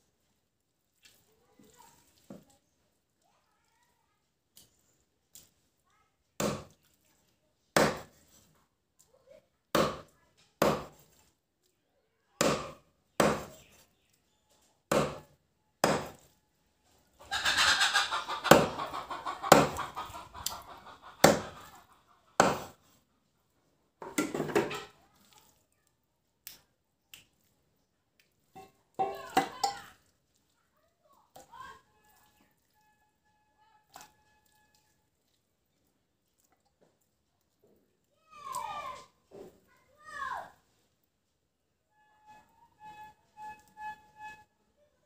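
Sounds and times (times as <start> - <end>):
knife chopping on wooden block: 7.8 - 8.1, 9.8 - 11.0, 12.4 - 13.6, 14.9 - 16.2, 19.5 - 19.8, 21.2 - 21.6, 22.4 - 22.7.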